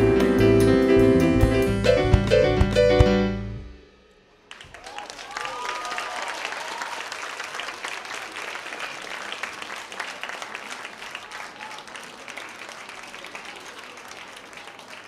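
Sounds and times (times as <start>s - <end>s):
audience applauding: 4.5s - 15.0s.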